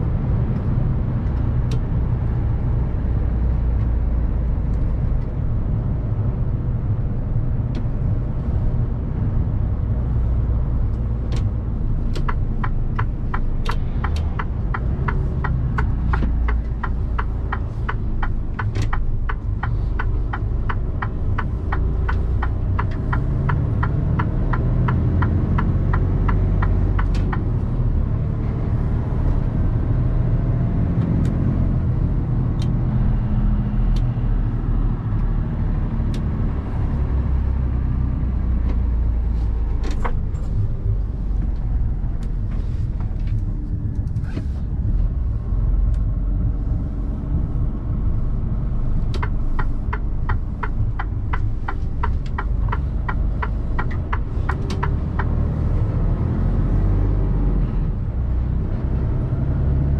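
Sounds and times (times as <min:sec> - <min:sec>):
truck engine and road rumble: 0:00.0 - 0:59.9
turn indicator ticking: 0:10.8 - 0:29.6, 0:44.8 - 0:56.7.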